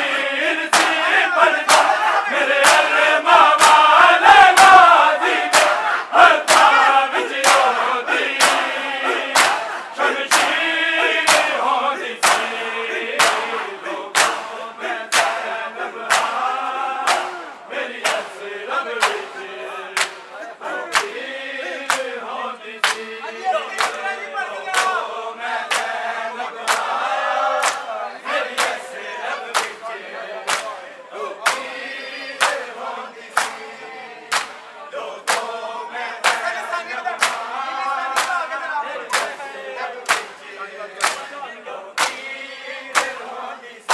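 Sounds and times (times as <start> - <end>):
men chanting in unison: 0.0 - 43.9
hands slapping chests: 0.7 - 11.6, 12.2 - 18.4, 19.0 - 19.4, 20.0 - 20.3, 20.9 - 21.2, 21.8 - 22.2, 22.8 - 23.1, 23.8 - 24.1, 24.7 - 25.1, 25.7 - 26.0, 26.7 - 27.9, 28.5 - 28.8, 29.5 - 29.8, 30.5 - 30.8, 31.4 - 31.7, 32.4 - 32.7, 33.3 - 33.7, 34.3 - 35.6, 36.2 - 38.5, 39.1 - 39.4, 40.0 - 40.4, 41.0 - 41.3, 42.0 - 42.3, 42.9 - 43.3.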